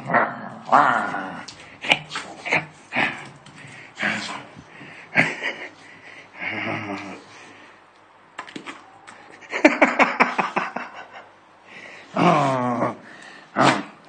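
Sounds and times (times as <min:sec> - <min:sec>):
dog grunting: 0:12.1 - 0:14.0.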